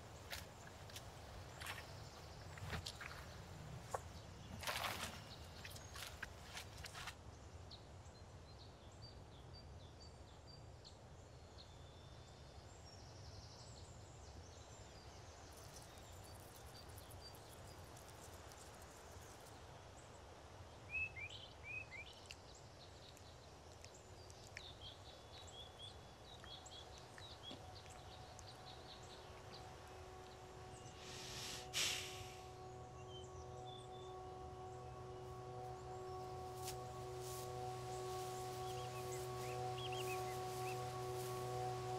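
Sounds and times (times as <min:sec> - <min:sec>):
bird chirps: 0:00.0 - 0:07.1, 0:23.0 - 0:41.9
low woodland hush: 0:00.0 - 0:07.6, 0:14.2 - 0:41.9
sustained drone of held tones: 0:24.6 - 0:41.9
short hiss: 0:31.0 - 0:32.5.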